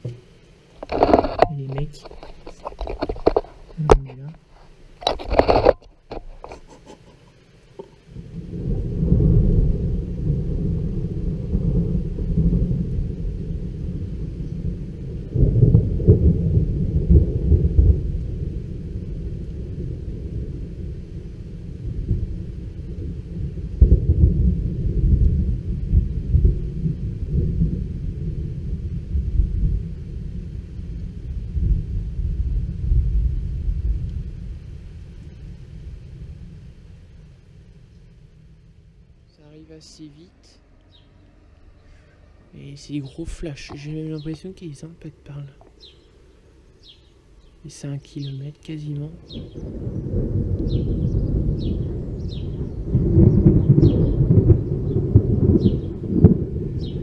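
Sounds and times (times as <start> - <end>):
rolling thunder: 8.0 - 39.3, 49.1 - 57.0.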